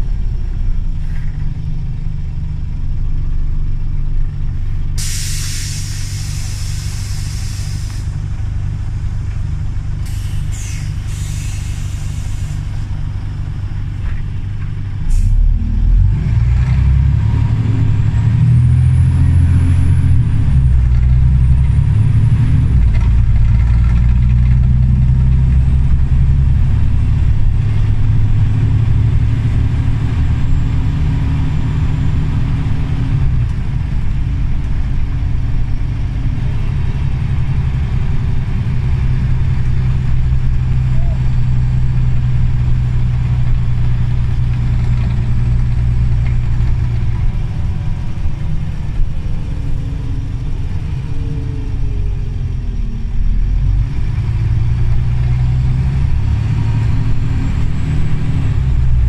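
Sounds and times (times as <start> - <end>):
bus engine drone: 0.0 - 59.0.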